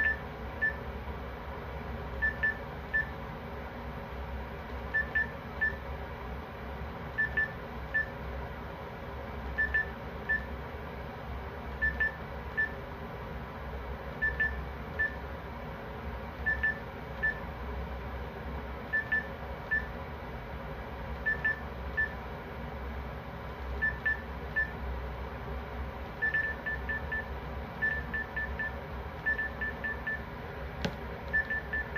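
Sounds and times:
steady low hum: 0:00.0 - 0:31.9
electronic alarm beeping: 0:09.6 - 0:10.5, 0:26.2 - 0:30.2, 0:31.3 - 0:31.9.

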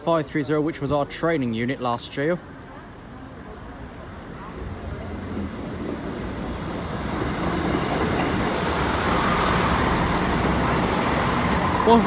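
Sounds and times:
train engine hum: 0:00.0 - 0:12.0
train wheel rumble: 0:03.5 - 0:12.0.

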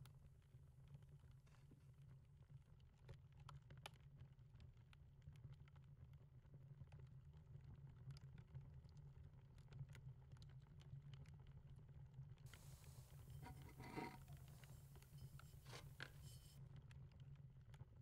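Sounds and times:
faint hiss: 0:12.5 - 0:16.6
objects being handled: 0:12.5 - 0:16.6.

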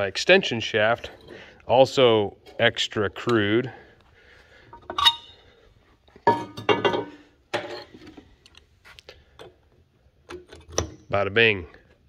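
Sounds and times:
metal parts clinking and clanking: 0:04.7 - 0:05.4, 0:06.2 - 0:08.6.

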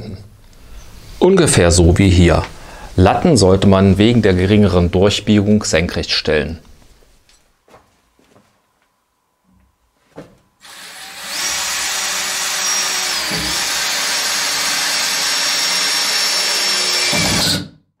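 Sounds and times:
cordless drill whining: 0:10.6 - 0:17.7.

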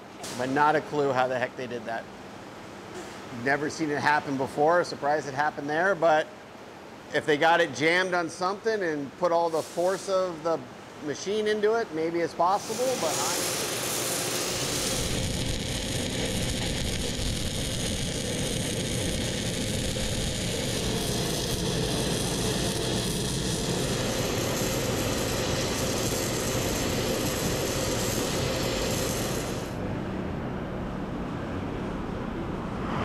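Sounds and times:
welding arc crackling: 0:12.5 - 0:29.8
steady low rush: 0:12.6 - 0:33.0.

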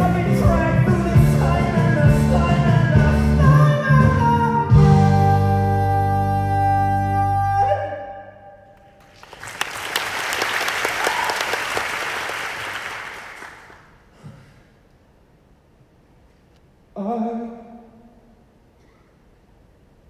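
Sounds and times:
audience applauding: 0:08.8 - 0:14.0.

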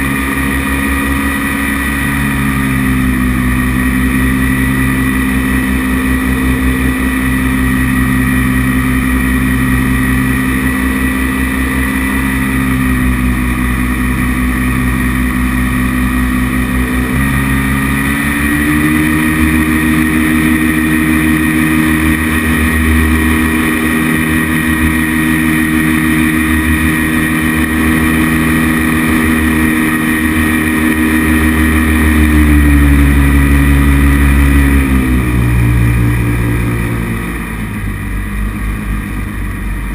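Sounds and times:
paramotor engine and propeller: 0:00.0 - 0:39.9.

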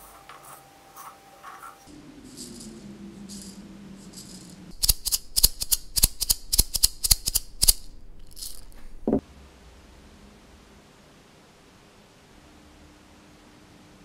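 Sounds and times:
maraca rattling: 0:01.8 - 0:09.2.

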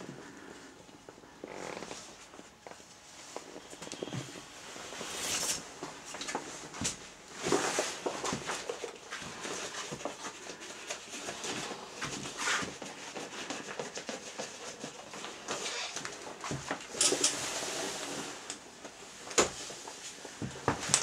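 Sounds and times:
rubber clothing rustling and creaking: 0:00.0 - 0:21.0.

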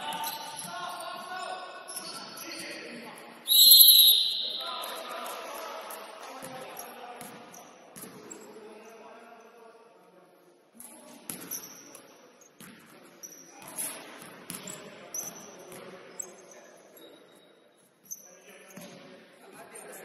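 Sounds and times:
sneaker squeaks: 0:00.0 - 0:01.0, 0:01.9 - 0:02.6, 0:03.5 - 0:05.4, 0:11.1 - 0:19.0.

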